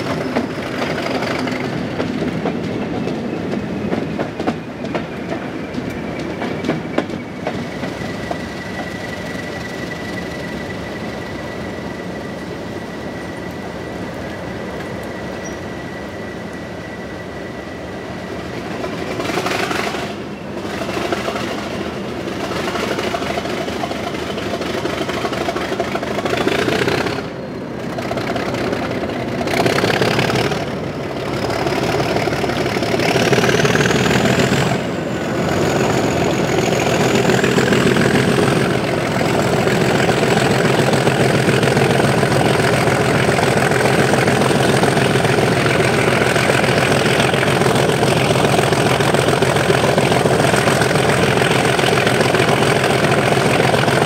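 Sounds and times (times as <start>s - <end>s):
diesel locomotive engine: 0.0s - 54.0s.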